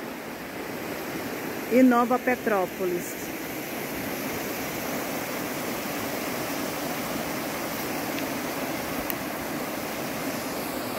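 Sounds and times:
river rushing over rocks: 0.0 - 10.9.

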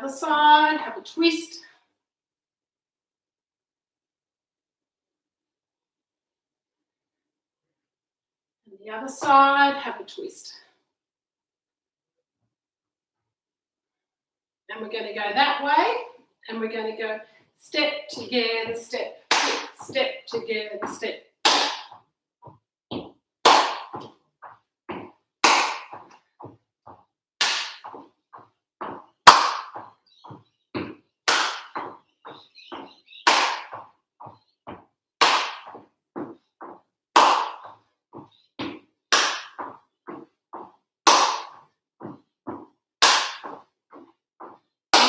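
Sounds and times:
footsteps on wooden floor: 17.5 - 21.2, 21.8 - 35.0, 35.6 - 40.8, 41.4 - 44.8.

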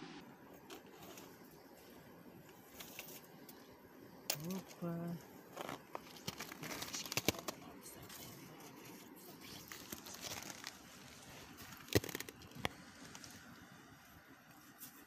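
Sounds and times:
slushy ice crunching: 5.5 - 7.7, 9.5 - 13.5.

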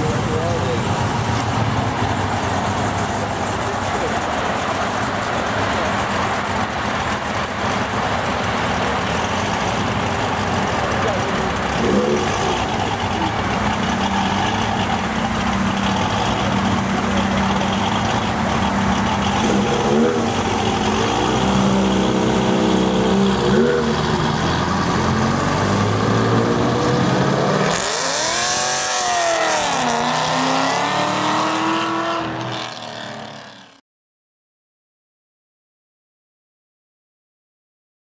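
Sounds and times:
sports car engine idling: 0.0 - 23.4
car revving and driving off: 0.0 - 33.8.

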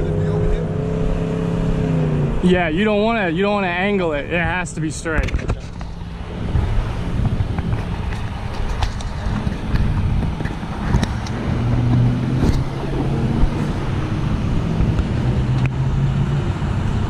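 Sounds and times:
footsteps on asphalt: 5.2 - 12.7.

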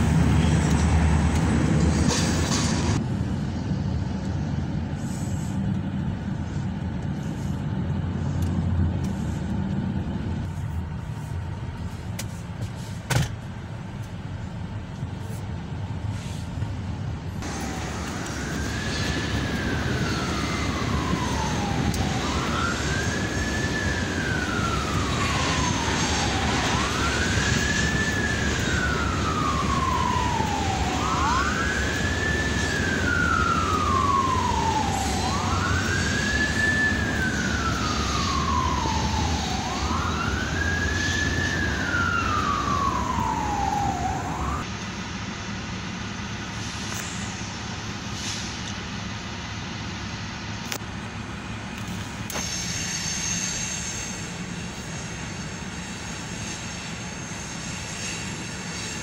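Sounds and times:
emergency vehicle siren wailing: 0.0 - 3.7, 17.4 - 45.4
low rumble of traffic: 0.0 - 59.0.

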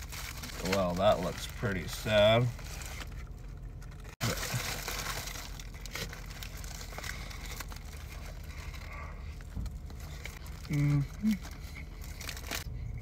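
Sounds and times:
foil wrapper crinkling: 0.0 - 12.7
biting and chewing crispy food: 0.0 - 13.0
low car cabin hum: 0.0 - 13.0.

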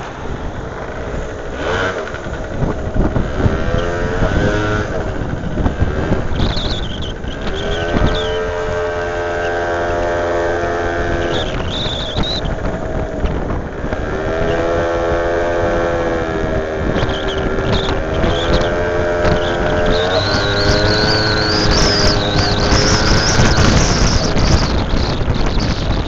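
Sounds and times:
scooter engine running: 0.0 - 26.0
wind on microphone: 0.0 - 26.0.

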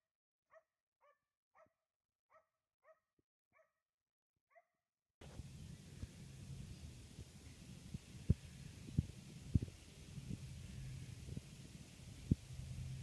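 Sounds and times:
faint dog barking: 0.5 - 3.0
low rumbling noise: 5.2 - 13.0.

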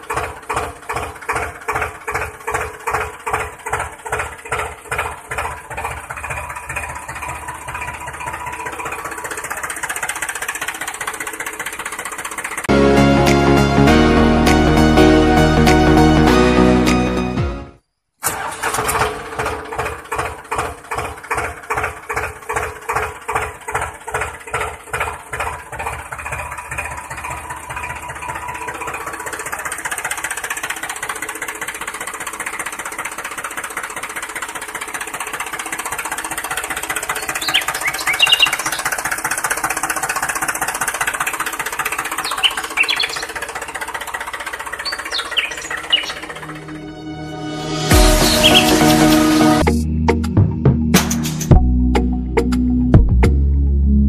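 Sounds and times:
tractor engine chugging: 0.0 - 17.4, 18.2 - 50.4
short high chirps: 47.6 - 49.5.

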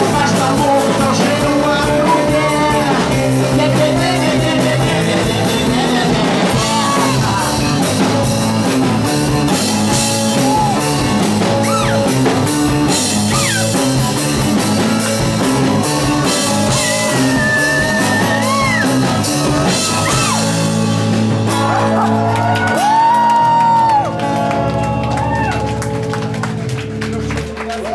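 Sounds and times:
bass guitar: 0.0 - 27.9
drums: 0.0 - 27.9
electric guitar: 0.0 - 27.9.

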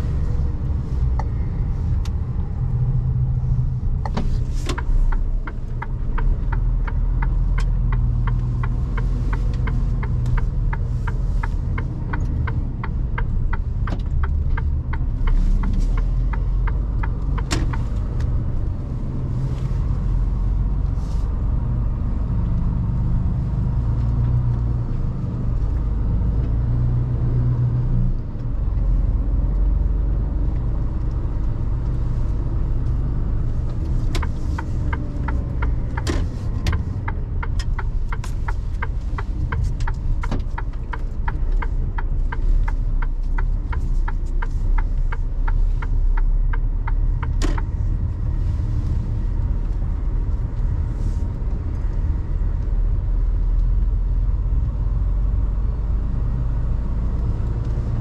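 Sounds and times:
truck engine rumble: 0.0 - 58.0
turn signal ticking: 0.0 - 58.0.

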